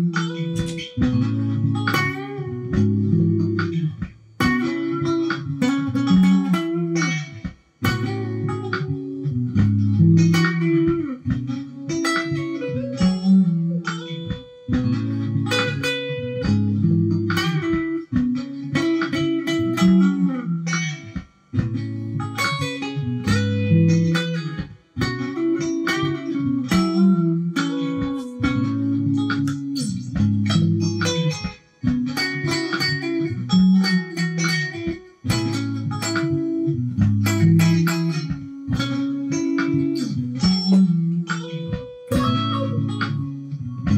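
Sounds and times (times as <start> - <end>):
electric guitar soul lead: 0.0 - 43.9
repeating low bass line: 28.3 - 31.2.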